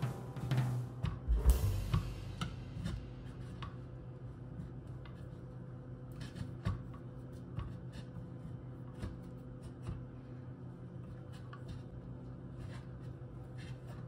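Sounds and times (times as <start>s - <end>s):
low steady hum: 0.0s - 14.0s
cheese scraping on grater: 6.1s - 9.8s, 11.2s - 14.0s.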